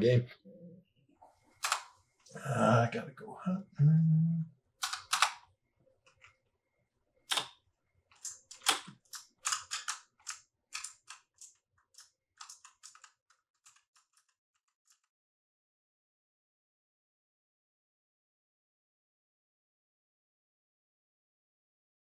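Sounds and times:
sharp clicks and pops: 1.6s - 2.0s, 4.8s - 5.5s, 7.3s - 14.4s.

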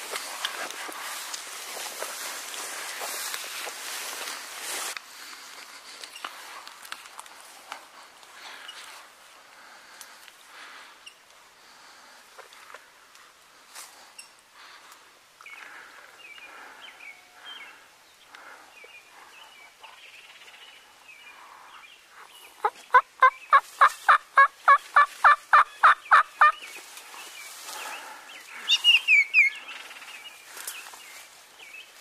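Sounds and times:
turkey yelping: 22.6s - 26.6s.

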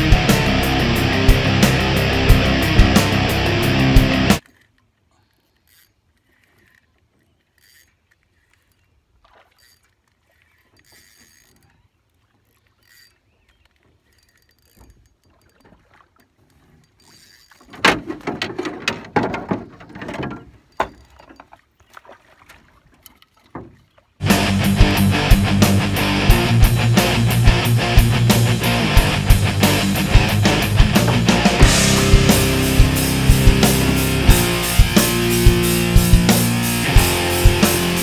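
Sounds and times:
oars splashing water: 4.4s - 24.2s, 29.6s - 38.0s
sharp knocks of oars: 14.7s - 24.1s.

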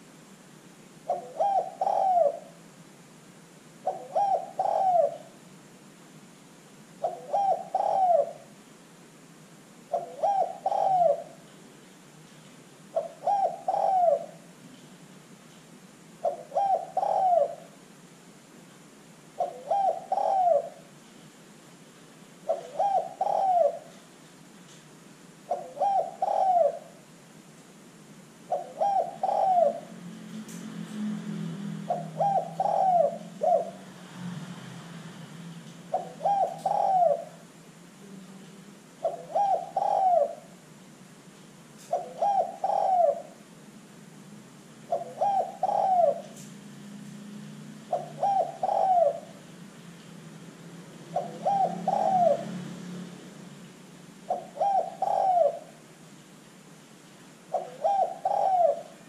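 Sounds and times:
dove cooing: 1.0s - 2.6s, 3.8s - 5.4s, 7.0s - 8.6s, 9.9s - 11.5s, 12.9s - 14.5s, 16.2s - 17.8s, 19.4s - 20.9s, 22.4s - 24.0s, 25.5s - 27.1s, 28.5s - 30.6s, 31.8s - 34.2s, 35.9s - 37.6s, 39.0s - 40.7s, 41.8s - 43.5s, 44.8s - 46.6s, 47.5s - 49.7s, 51.0s - 53.6s, 54.2s - 55.8s, 57.4s - 59.0s.

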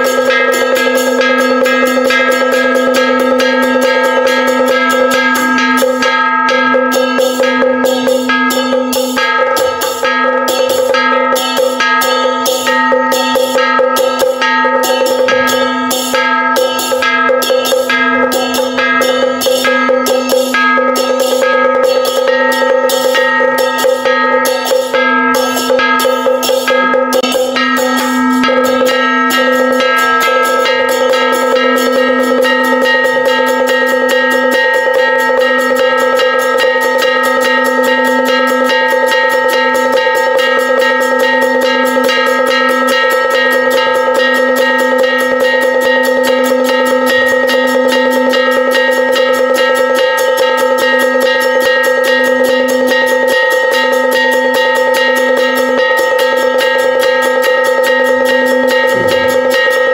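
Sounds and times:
sustained ringing tone: 0.0s - 59.9s
wood-block strikes: 0.0s - 59.9s
fast drum strikes: 57.9s - 59.9s.

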